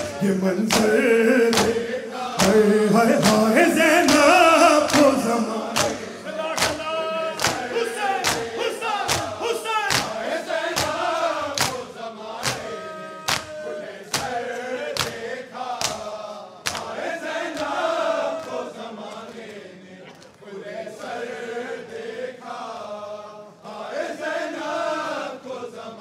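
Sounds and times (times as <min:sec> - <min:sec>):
men beating chests with palms: 0:00.0 - 0:17.8
men chanting mournful refrain: 0:00.0 - 0:26.0.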